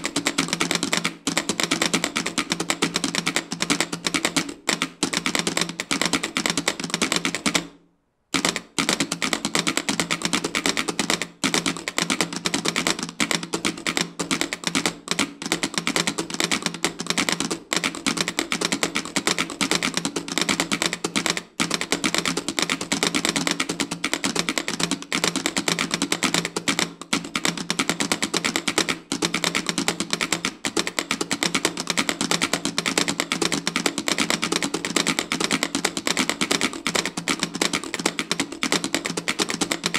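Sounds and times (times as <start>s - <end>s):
telegraph keys clicking: 8.4s - 39.9s.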